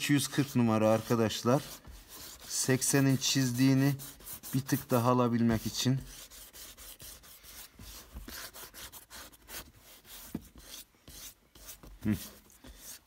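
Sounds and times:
sandpaper rubbing by hand: 0.0s - 13.0s.

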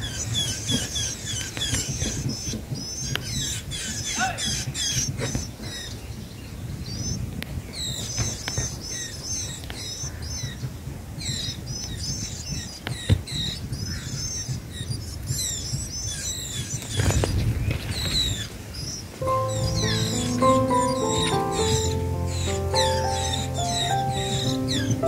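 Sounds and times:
nestlings cheeping: 19.2s - 25.0s.

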